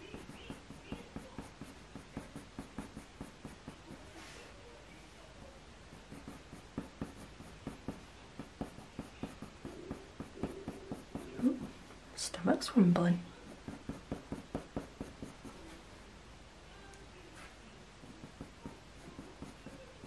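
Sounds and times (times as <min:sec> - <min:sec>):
pencil scratching on paper: 0:00.0 - 0:04.6, 0:05.9 - 0:11.9, 0:13.3 - 0:15.8, 0:18.0 - 0:20.0.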